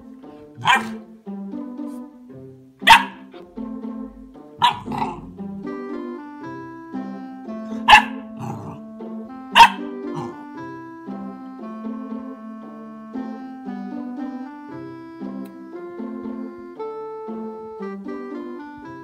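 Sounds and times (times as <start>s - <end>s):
piano music: 0.0s - 19.0s
puppy barking: 0.5s - 1.0s, 2.8s - 3.4s, 4.6s - 5.4s, 7.7s - 8.8s, 9.5s - 10.4s.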